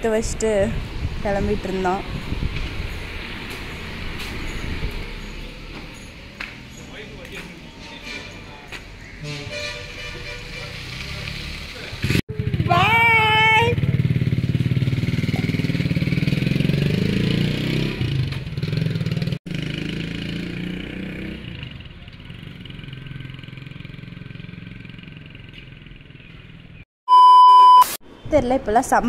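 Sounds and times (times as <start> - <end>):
loud steady beep: 27.1 - 28.0.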